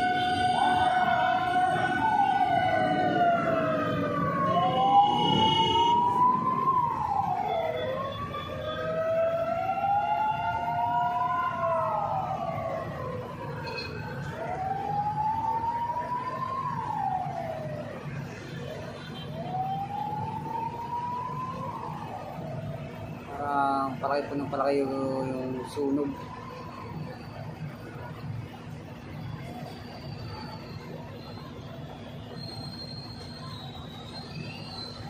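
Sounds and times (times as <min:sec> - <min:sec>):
fire truck sirens wailing: 0:00.0 - 0:35.0
street traffic noise: 0:00.0 - 0:35.0.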